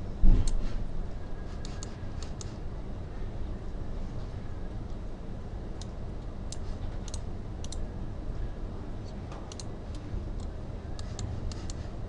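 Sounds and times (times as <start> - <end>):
steady low hum: 0.0 - 12.0
computer mouse clicks: 1.6 - 2.6, 5.8 - 7.8, 9.5 - 11.9.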